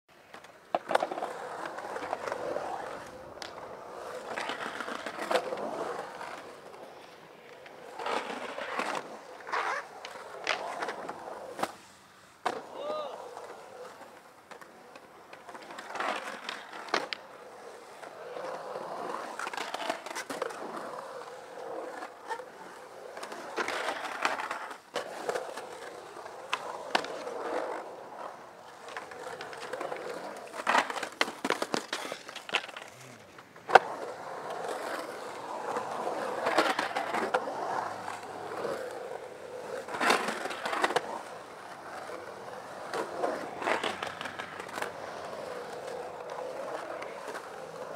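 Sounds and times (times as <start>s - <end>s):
skateboard wheels rolling on concrete: 0.1s - 47.9s
skateboard clacking on concrete: 0.2s - 11.8s, 12.4s - 47.9s.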